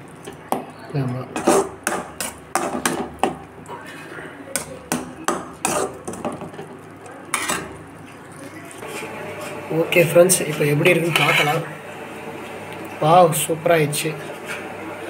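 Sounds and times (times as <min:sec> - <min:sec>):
metal ladle clanking in a pan: 0:04.6 - 0:07.8.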